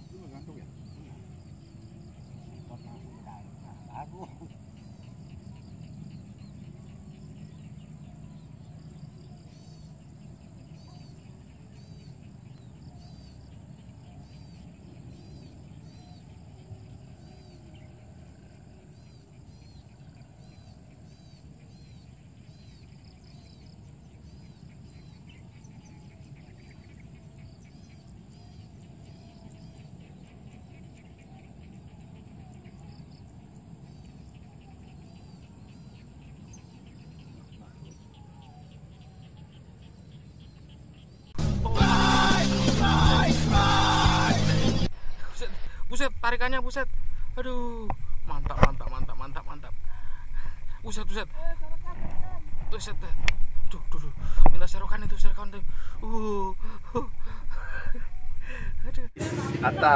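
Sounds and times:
high insect drone: 0.0 - 59.9
small birds chirping: 0.0 - 59.9
low background rumble: 41.3 - 59.9.

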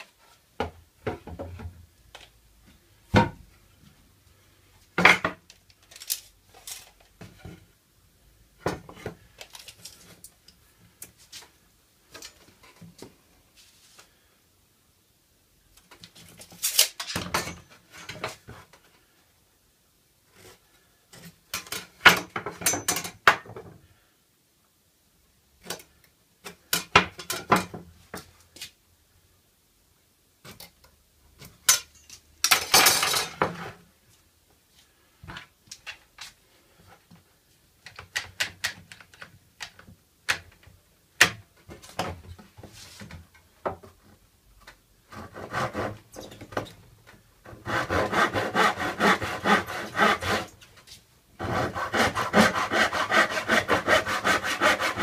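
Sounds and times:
hand saw cutting wood: 45.1 - 46.0, 47.5 - 50.6, 51.4 - 55.0.

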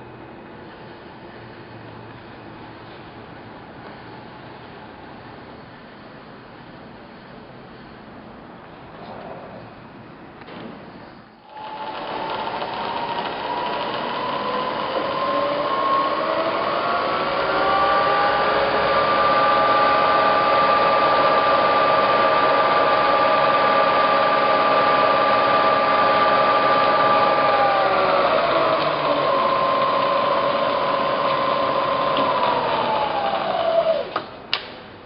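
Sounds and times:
spindle motor whine rising: 11.4 - 34.3.

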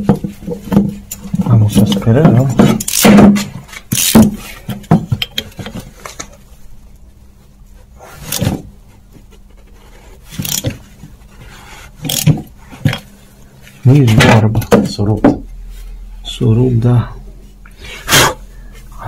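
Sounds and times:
socket ratchet clicking on metal: 2.8 - 3.1, 3.9 - 4.2, 10.4 - 10.7, 12.0 - 12.4.

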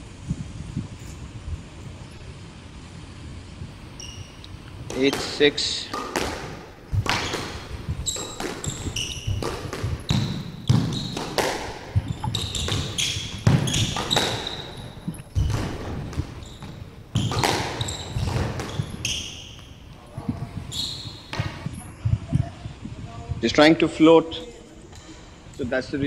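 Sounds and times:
shoes squeaking on wooden floor: 4.0 - 21.8
squash ball cracking off rackets: 4.5 - 20.0.

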